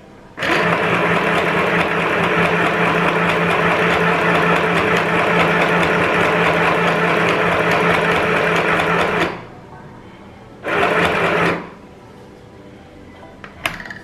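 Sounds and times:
sewing machine stitching: 0.4 - 9.4, 10.6 - 11.7.

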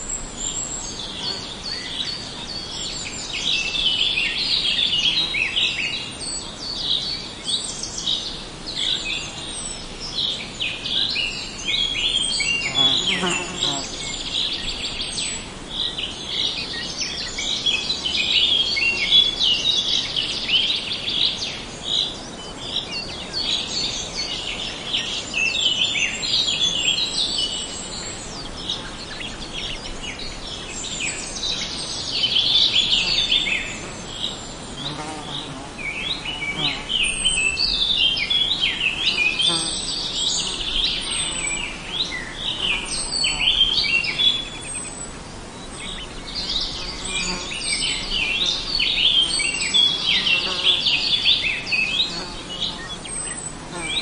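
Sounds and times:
songbirds chirping: 0.0 - 54.0.

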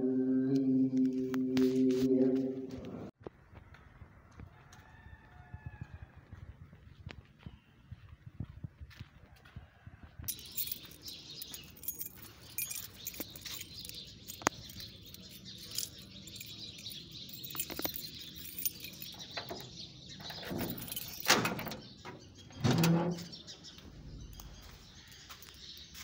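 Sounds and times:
light footsteps: 2.7 - 19.1, 23.8 - 26.0
birds chirping: 10.3 - 26.0.

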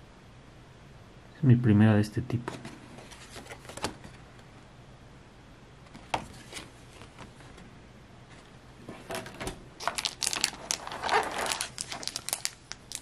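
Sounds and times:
foil wrapper crinkling: 9.8 - 13.0.

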